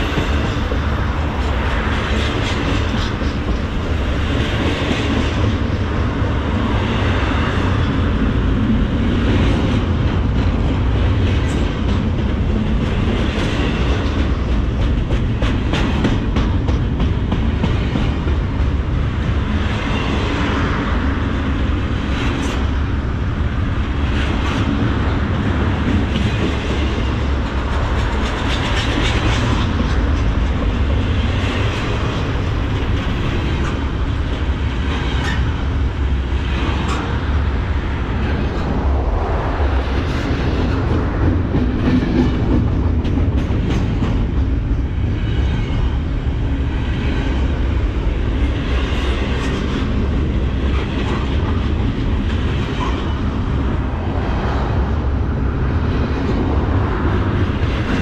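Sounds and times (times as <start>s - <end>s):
train wheels rolling on rail: 0.0s - 58.0s
wheels clacking over rail joints: 9.4s - 21.0s, 23.9s - 38.7s.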